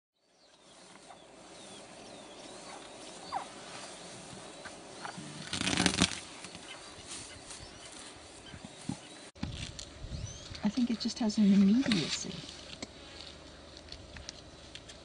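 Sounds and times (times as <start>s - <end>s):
faint bird chirps: 0.2s - 9.3s
loud rustling crunching noise: 5.2s - 8.2s.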